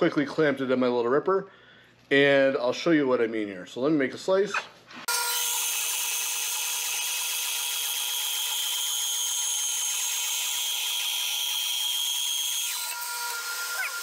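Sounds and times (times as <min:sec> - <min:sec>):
bandsaw blade cutting wood: 0:04.5 - 0:14.0
bandsaw running whine: 0:05.1 - 0:14.0.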